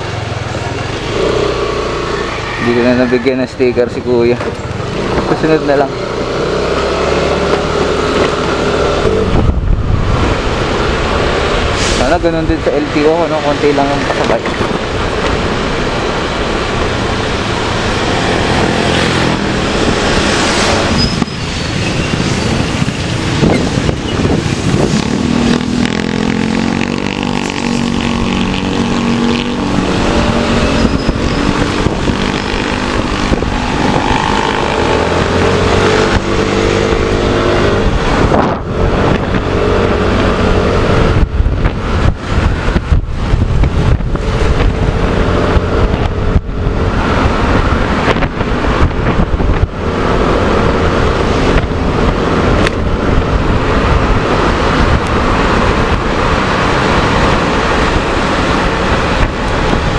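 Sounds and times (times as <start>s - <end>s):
road and wind noise: 0.0s - 59.9s.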